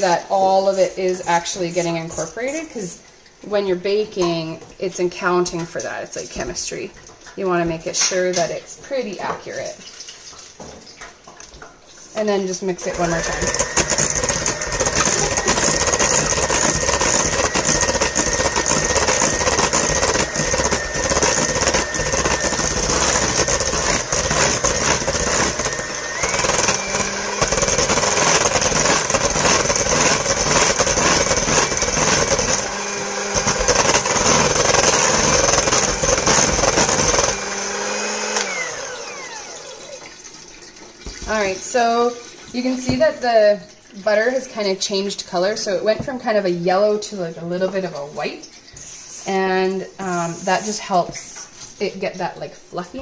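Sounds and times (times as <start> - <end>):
electric hand mixer whine: 12.8 - 42.7.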